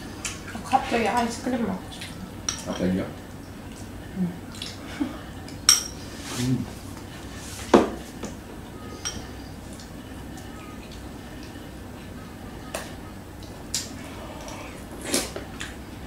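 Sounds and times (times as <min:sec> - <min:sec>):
spoon clinking against bowls: 0:02.5 - 0:03.0, 0:05.7 - 0:06.0, 0:09.0 - 0:09.4.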